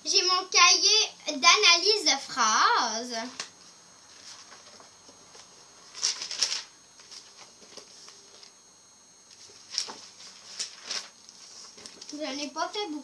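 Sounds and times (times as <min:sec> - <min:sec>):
notebook pages rustling: 0:04.1 - 0:08.6, 0:09.3 - 0:12.5.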